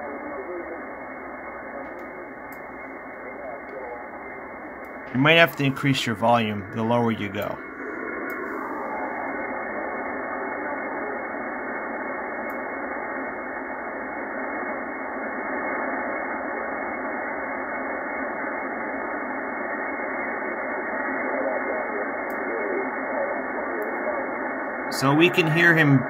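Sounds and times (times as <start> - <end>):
weak radio voice: 0.0 - 7.6, 8.6 - 12.4, 20.2 - 26.0
radio static hiss: 0.0 - 26.0.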